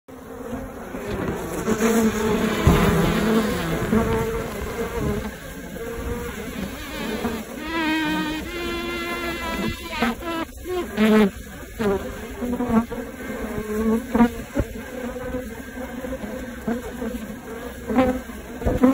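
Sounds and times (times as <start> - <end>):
bee colony buzzing: 0.1 - 18.9
bees droning past microphone: 0.1 - 18.9
low bump: 2.2 - 5.2.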